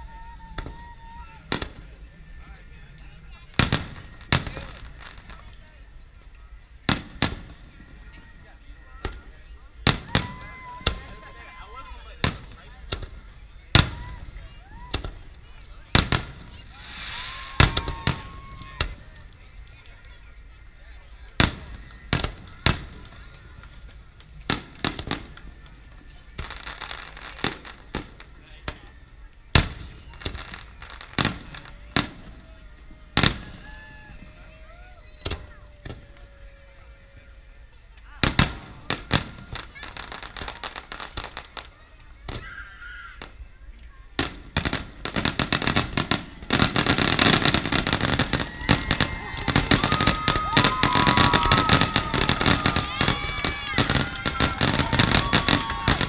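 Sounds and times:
long steady high tones: 0.0s - 42.2s
firework crackling: 0.0s - 56.0s.

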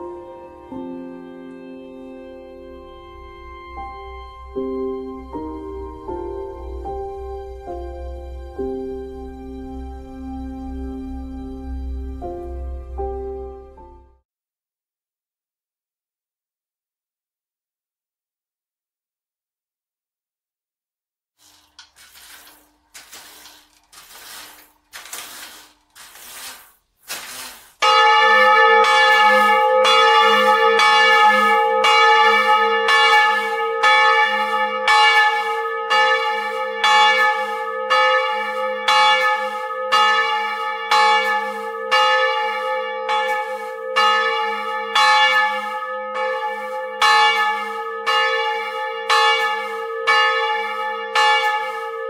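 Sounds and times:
church bell ringing: 0.0s - 13.6s, 27.8s - 52.0s.

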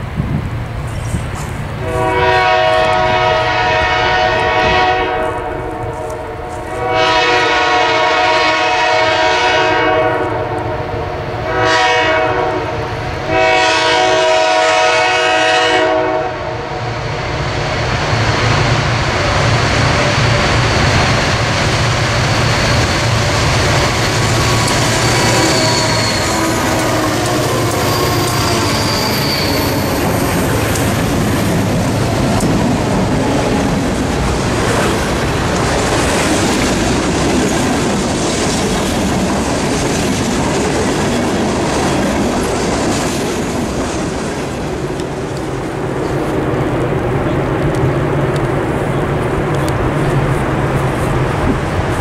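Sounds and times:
diesel locomotive engines: 0.0s - 52.0s
train wheels on rail: 0.0s - 52.0s
locomotive air horn blasts: 1.8s - 16.8s, 24.6s - 30.4s
high wheel squeal: 22.1s - 32.2s.

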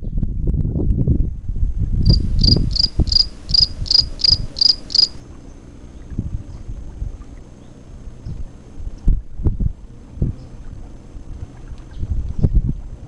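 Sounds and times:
low rumble: 1.8s - 5.2s
high cricket chirps: 2.0s - 5.2s.

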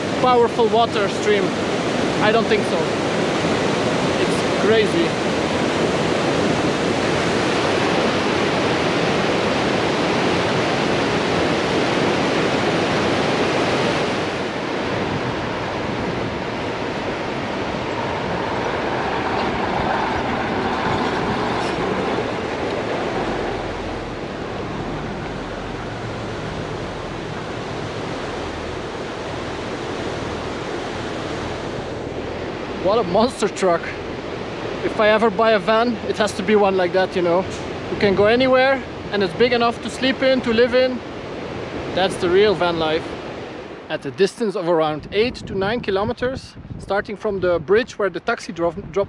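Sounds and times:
river rushing over rocks: 0.0s - 43.9s
truck engine rumble: 14.9s - 35.4s.

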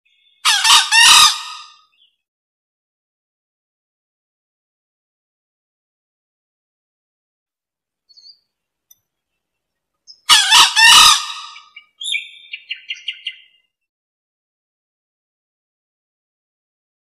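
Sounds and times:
junglefowl crowing: 0.4s - 1.8s, 10.3s - 11.8s.

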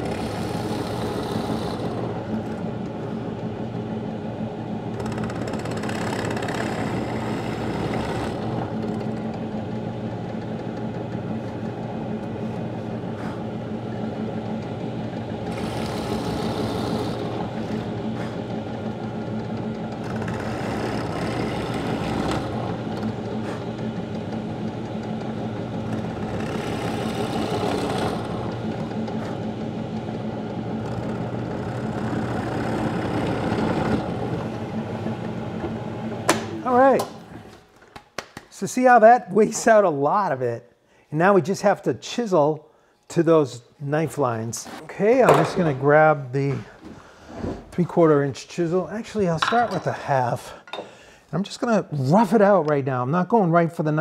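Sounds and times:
drill boring into wood: 0.0s - 2.2s, 5.0s - 9.1s, 15.4s - 17.8s, 20.0s - 22.8s, 26.0s - 28.6s.

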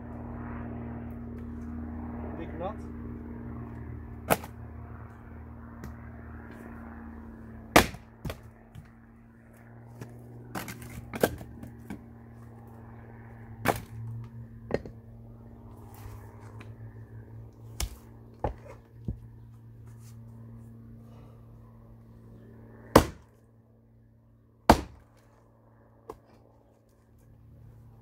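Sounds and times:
steady low hum: 0.0s - 28.0s
axe chopping wood: 4.2s - 4.6s, 7.7s - 8.9s, 10.0s - 12.1s, 13.6s - 15.0s, 17.7s - 19.2s, 22.9s - 23.3s, 24.6s - 25.3s.

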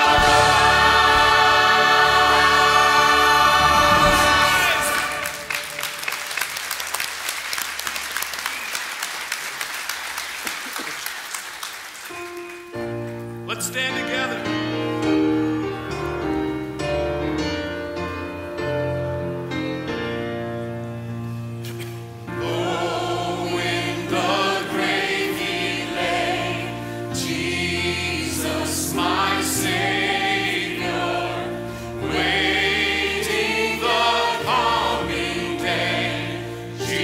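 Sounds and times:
choir and band final chord: 0.0s - 6.2s, 22.2s - 37.0s
congregation applauding: 3.6s - 13.0s
soft instrumental music: 12.2s - 37.0s.

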